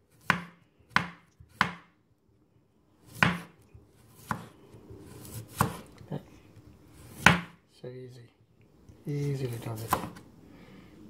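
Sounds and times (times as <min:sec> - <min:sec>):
knife slicing on wooden board: 0:03.1 - 0:06.0, 0:09.3 - 0:10.2.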